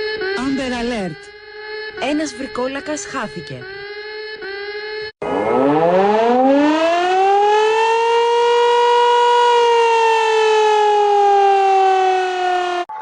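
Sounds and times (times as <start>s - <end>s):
steady beep tone: 0.0s - 4.0s
siren wailing: 0.0s - 13.0s.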